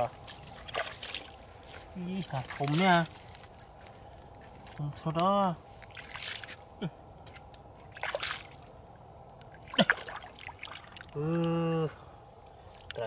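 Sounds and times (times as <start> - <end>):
splashing in shallow water: 0.0 - 3.7, 5.8 - 11.5
man humming: 11.2 - 12.0.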